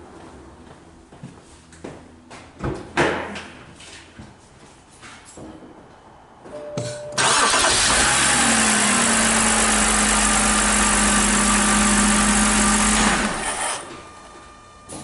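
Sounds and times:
car engine cranking and idling: 7.2s - 14.0s.

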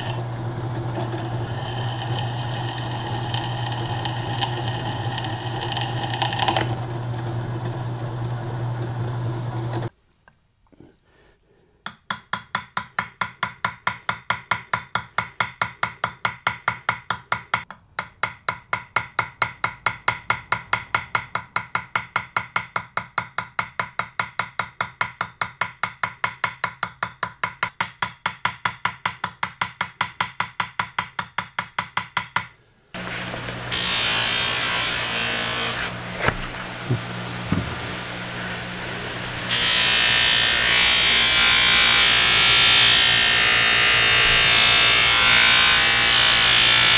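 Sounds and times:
buffing wheel hissing on wood: 0.0s - 6.8s, 33.0s - 40.3s
buffer motor humming: 0.0s - 9.9s, 33.0s - 42.8s.

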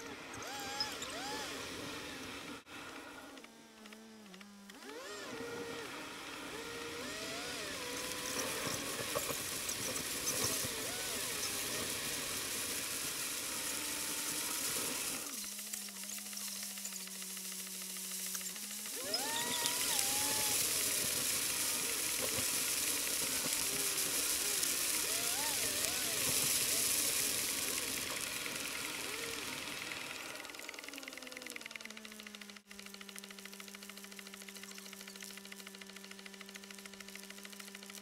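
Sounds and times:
rain and wet tyres hissing: 7.1s - 15.4s, 18.4s - 30.5s.

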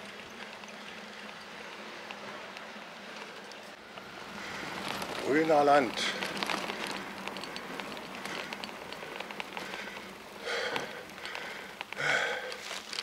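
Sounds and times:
bicycle tyres rolling on cobblestones: 0.0s - 13.0s.

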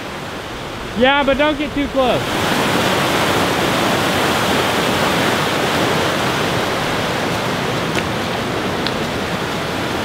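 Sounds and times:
stream rushing over rocks: 0.0s - 10.0s.

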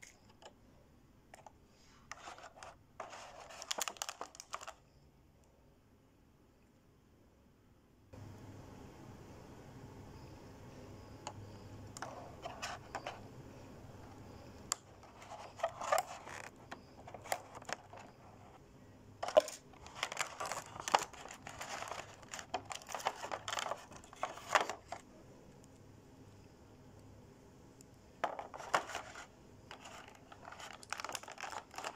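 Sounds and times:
plastic packaging crinkling: 2.1s - 4.8s, 14.7s - 18.6s, 19.2s - 25.0s, 28.2s - 31.9s.

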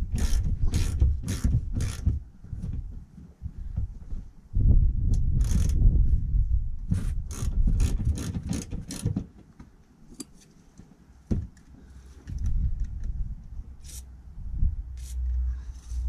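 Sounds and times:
socket ratchet clicking: 0.2s - 2.0s, 5.4s - 5.8s.

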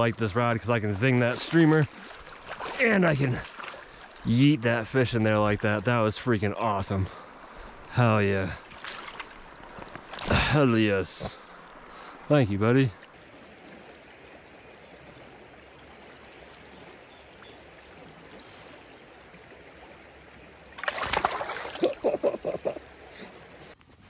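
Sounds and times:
river current flowing: 0.0s - 23.8s
fish splashing in water: 8.7s - 10.5s, 20.7s - 22.4s.

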